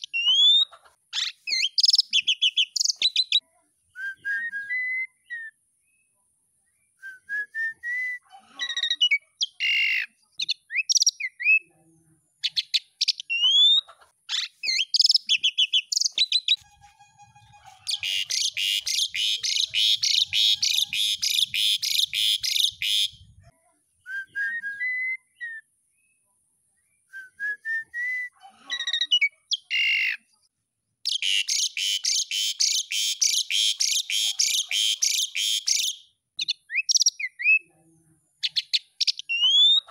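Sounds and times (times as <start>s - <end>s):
starling whistling song: 0.0s - 5.6s, 6.9s - 8.2s, 17.4s - 23.2s, 24.0s - 25.7s, 27.0s - 28.4s, 31.1s - 37.7s.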